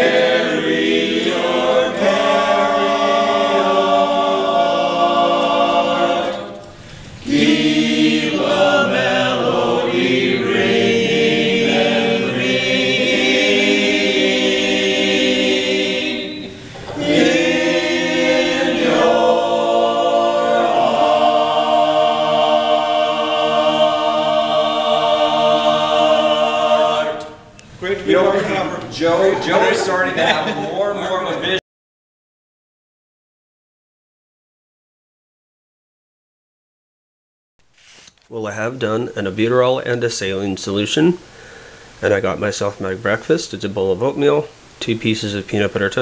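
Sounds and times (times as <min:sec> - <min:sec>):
men's choir singing a cappella: 0:00.0 - 0:27.5.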